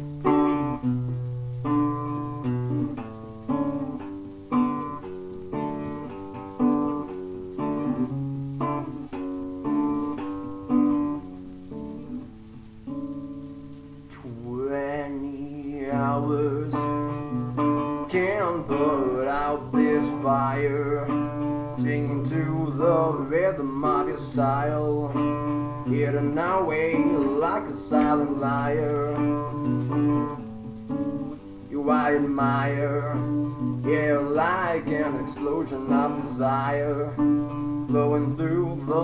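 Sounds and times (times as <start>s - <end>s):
acoustic guitar: 0.0s - 39.0s
man singing a ballad: 14.2s - 17.2s, 18.0s - 29.7s, 31.6s - 39.0s.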